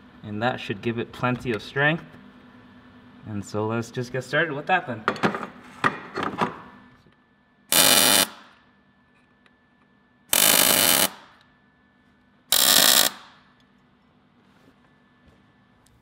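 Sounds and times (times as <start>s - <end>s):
arc welding bursts: 7.7s - 8.5s, 10.3s - 11.3s, 12.5s - 13.4s.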